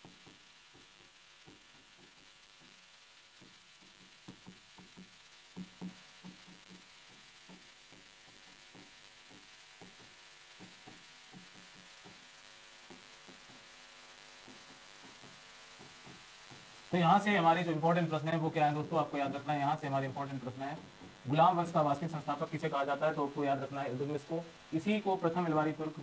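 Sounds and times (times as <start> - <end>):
stylus tapping on a screen: 0.0 - 2.7, 3.4 - 13.7, 14.4 - 16.7.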